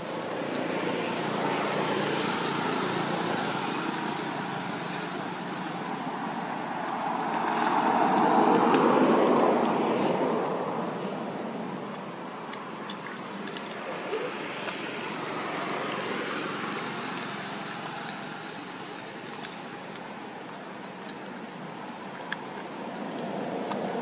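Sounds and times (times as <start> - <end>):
vehicle passing: 0.0 - 11.0, 13.0 - 20.0
road traffic rumble: 0.0 - 24.0.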